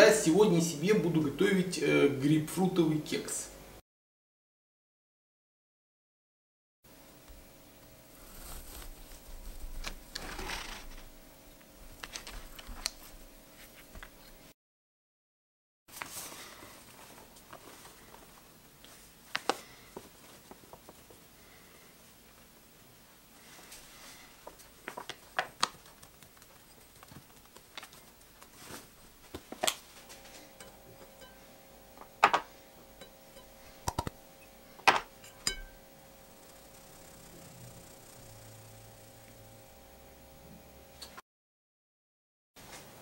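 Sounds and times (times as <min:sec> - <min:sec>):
flour pouring hiss: 0:08.1 - 0:11.0
bread knife sawing through cake: 0:08.2 - 0:10.8
paper bag crinkling: 0:08.2 - 0:11.1.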